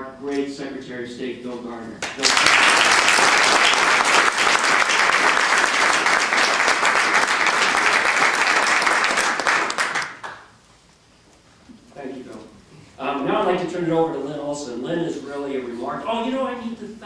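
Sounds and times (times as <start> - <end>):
audience applauding: 2.0 - 10.6.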